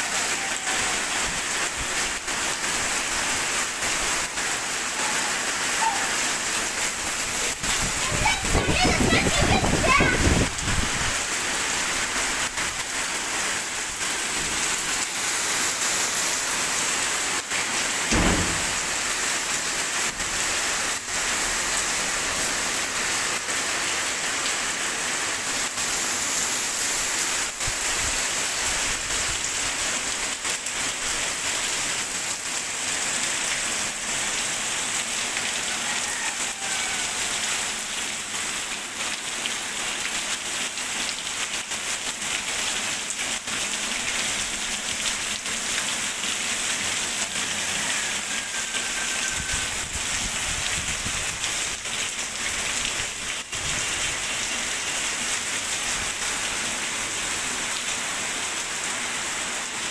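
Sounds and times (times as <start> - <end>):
heavy rain on wet pavement: 0.0 - 59.9
low thump: 18.1 - 19.0.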